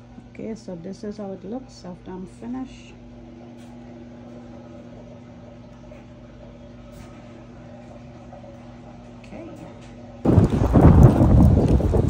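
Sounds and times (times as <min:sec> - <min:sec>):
low hum with pitched tone: 0:00.0 - 0:12.0.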